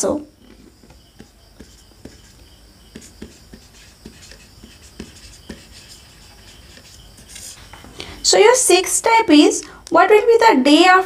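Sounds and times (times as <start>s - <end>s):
marker writing on whiteboard: 0.4s - 7.8s.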